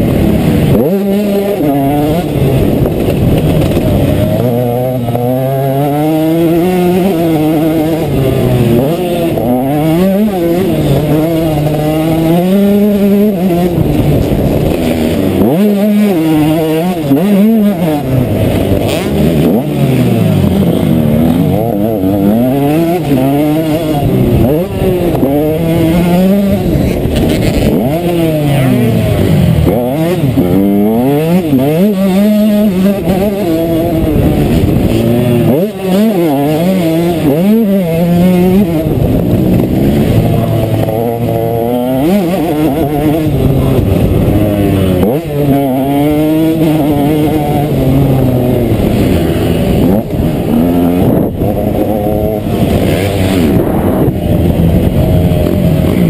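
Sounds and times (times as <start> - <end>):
motocross engine revving: 0.0 - 56.0.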